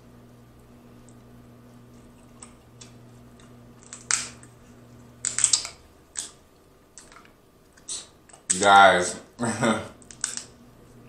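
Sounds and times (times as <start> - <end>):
crab shells cracking: 2.4 - 4.5, 5.2 - 8.7, 10.0 - 10.6.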